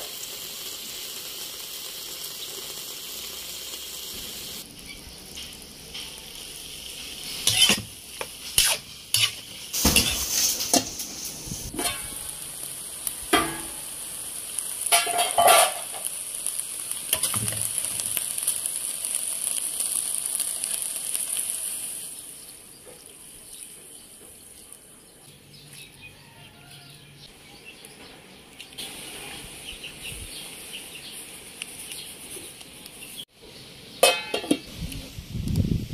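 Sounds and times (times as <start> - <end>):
meat sizzling in a wok: 0.0 - 23.8, 28.8 - 35.9
metal spatula scraping a pan: 7.2 - 12.4, 14.9 - 16.1.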